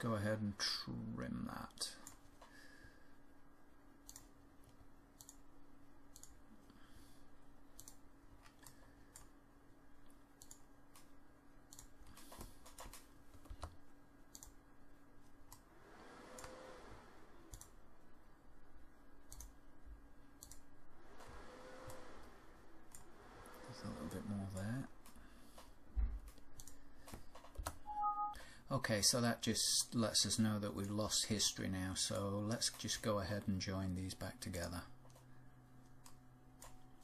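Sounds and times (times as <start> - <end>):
low electrical hum: 0.0 - 37.0
computer mouse clicks: 4.0 - 5.5, 6.1 - 6.4, 7.7 - 9.4, 10.4 - 11.1, 11.7 - 14.6, 16.3 - 16.6, 17.4 - 17.8, 19.2 - 19.6, 20.4 - 22.1, 22.9 - 25.7, 26.3 - 27.9, 36.0 - 36.8.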